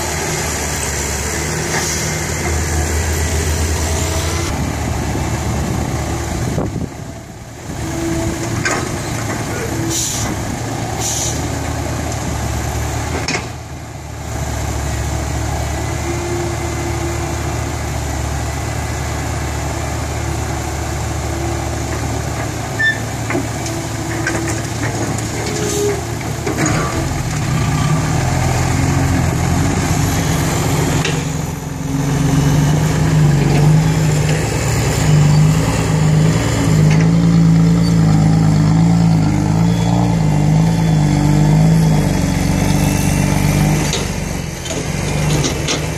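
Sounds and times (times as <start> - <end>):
diesel engines running: 0.0 - 45.9.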